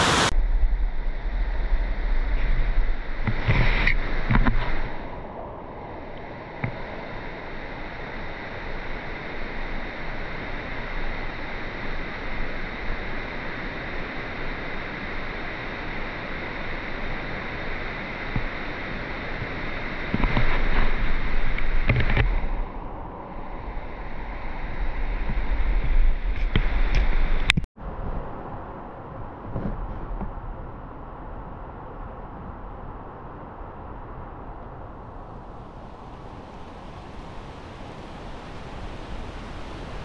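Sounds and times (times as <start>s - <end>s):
river water rushing: 0.0s - 0.3s, 34.8s - 40.0s
wind rumbling on microphone: 0.0s - 40.0s.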